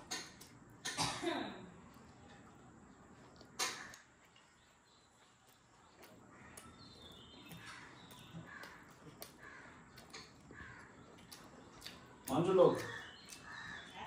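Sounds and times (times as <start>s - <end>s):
faint crows cawing: 3.6s - 4.5s, 5.8s - 14.0s.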